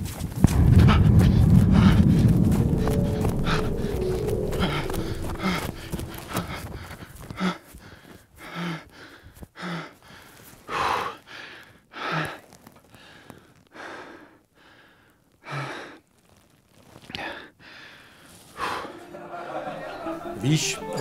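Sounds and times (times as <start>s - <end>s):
man gasping breaths: 6.4s - 12.4s, 17.2s - 19.0s.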